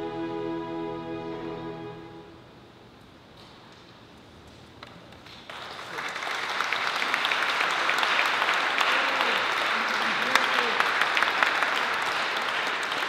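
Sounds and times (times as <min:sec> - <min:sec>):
audience applause: 0:05.4 - 0:13.0.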